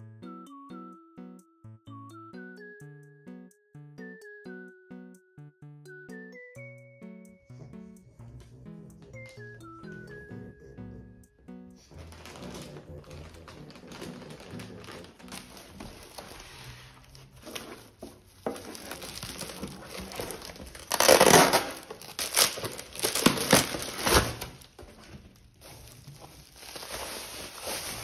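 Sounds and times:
plastic packaging crinkling: 11.9s - 28.0s.

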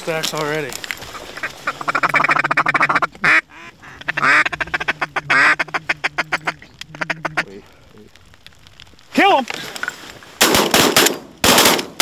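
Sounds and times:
drawn-out quacks: 1.1s - 7.6s
duck call feeding chatter: 1.2s - 7.5s.

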